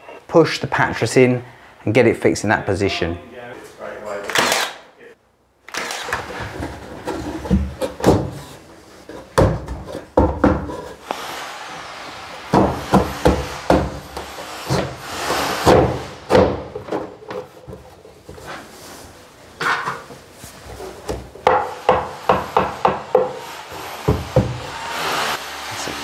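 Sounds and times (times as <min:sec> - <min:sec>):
wooden board knocks and thuds: 0:06.5 - 0:08.4, 0:09.2 - 0:10.8, 0:15.7 - 0:17.8.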